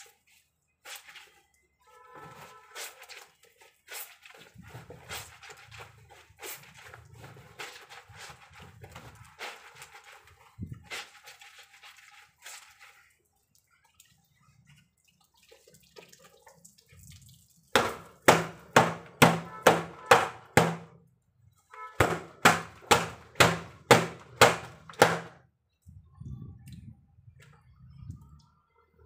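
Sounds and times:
wet laundry slaps: 17.8 - 21.0, 22.0 - 25.4.

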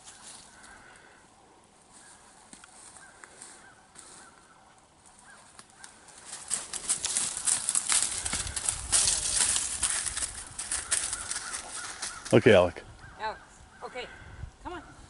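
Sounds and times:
footsteps crunching in dry leaves: 1.9 - 12.4.

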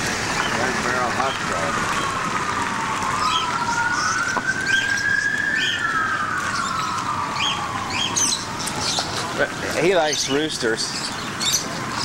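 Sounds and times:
siren wailing: 0.6 - 12.0
small birds chirping: 3.2 - 9.3, 9.9 - 12.0.

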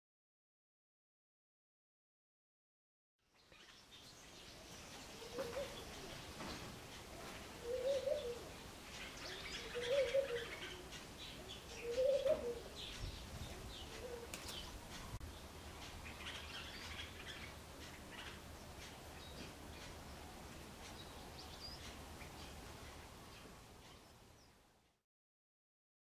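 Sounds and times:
small birds chirping: 3.2 - 24.9
dove cooing: 5.1 - 6.4, 7.1 - 14.9.

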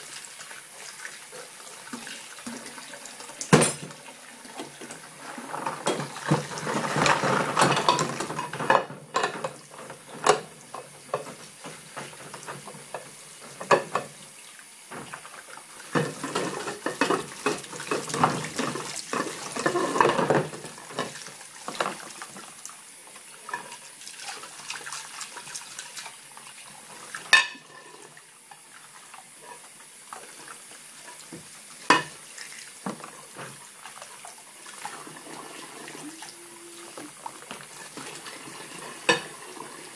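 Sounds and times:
dishes scrubbed and splashed: 0.0 - 14.2, 14.9 - 22.6, 23.4 - 39.9
tap water running into sink: 0.0 - 39.9
dishes clinking together: 3.4 - 4.0, 27.3 - 28.0.

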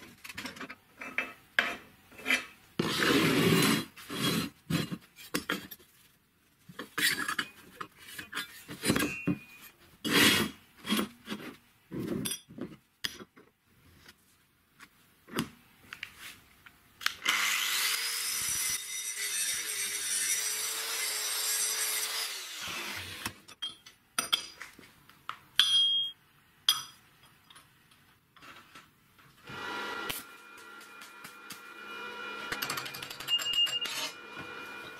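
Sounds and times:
power tool cutting steel: 17.2 - 23.3, 29.4 - 34.9.

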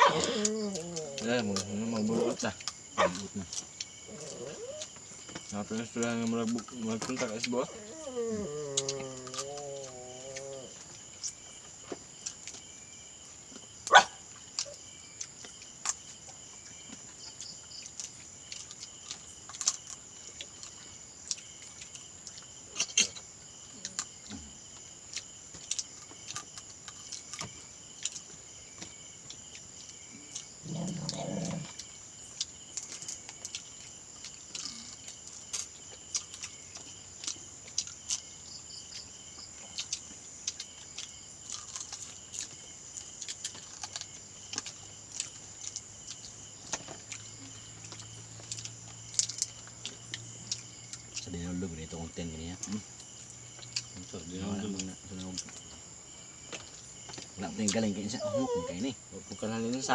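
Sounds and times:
dog call: 0.0 - 1.4, 3.0 - 3.3, 13.9 - 14.8, 58.1 - 58.9
insect chorus: 0.0 - 59.9.

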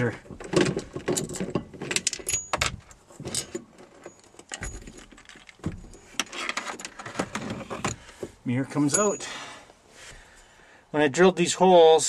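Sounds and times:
small metal hardware clinking: 1.0 - 6.9, 8.9 - 9.4.

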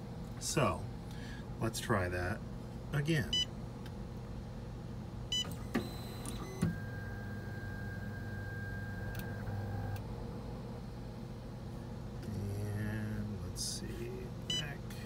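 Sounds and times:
stepper motor whine: 5.5 - 10.0.

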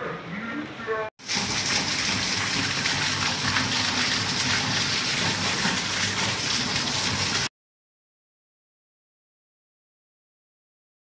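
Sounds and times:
rainwater splashing onto concrete: 1.2 - 7.5.

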